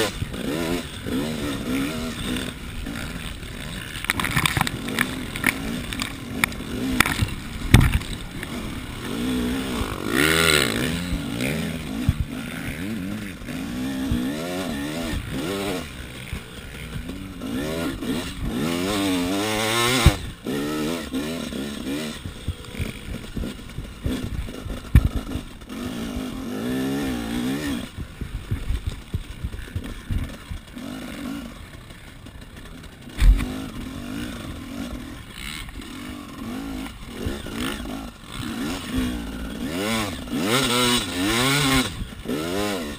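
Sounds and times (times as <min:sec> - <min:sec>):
dirt bike engine revving: 0:00.0 - 0:42.9
sharp thumps: 0:03.9 - 0:08.8, 0:22.2 - 0:25.6, 0:33.1 - 0:33.6.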